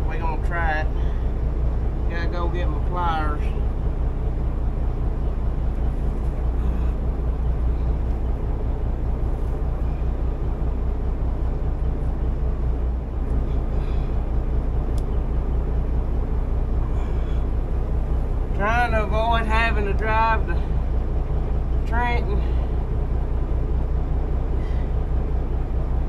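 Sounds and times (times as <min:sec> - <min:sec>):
engine idling: 0:00.0 - 0:26.0.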